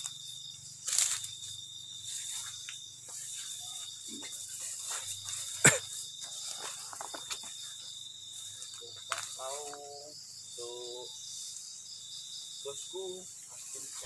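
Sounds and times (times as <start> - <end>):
crickets chirring: 0.0 - 14.0
soft ticks and rustles: 0.9 - 9.9.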